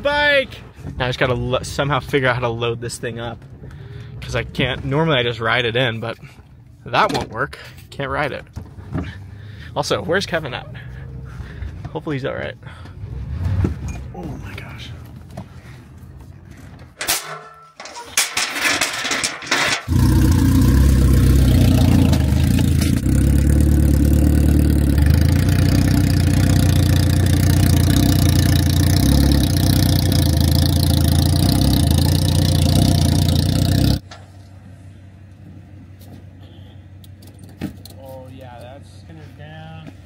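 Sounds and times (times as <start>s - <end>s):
vehicle engine running: 8.7s - 13.8s, 19.8s - 37.3s
knocks and handling sounds: 15.0s - 19.9s.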